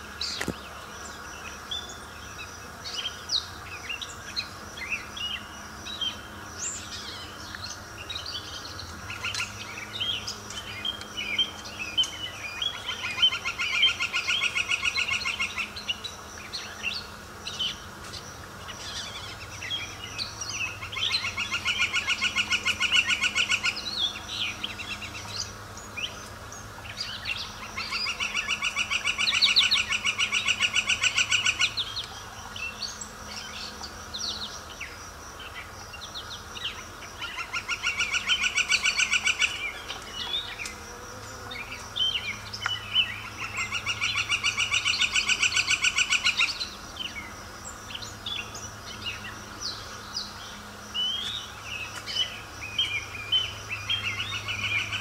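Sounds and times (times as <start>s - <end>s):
songbirds chirping: 0.0s - 55.0s
bird trill: 36.7s - 40.6s.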